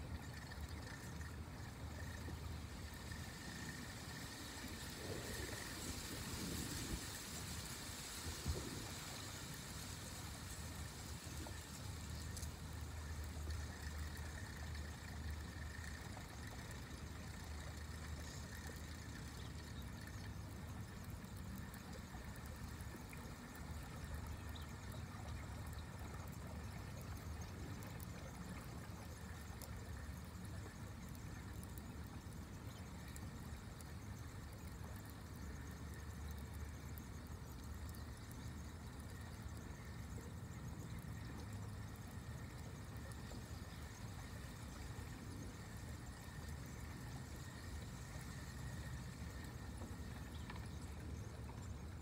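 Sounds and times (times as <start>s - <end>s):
light hiss: 0.0s - 52.0s.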